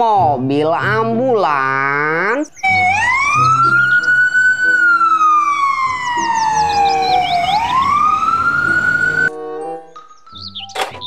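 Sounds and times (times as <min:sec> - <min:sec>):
ambulance siren wailing: 0:02.6 - 0:09.4.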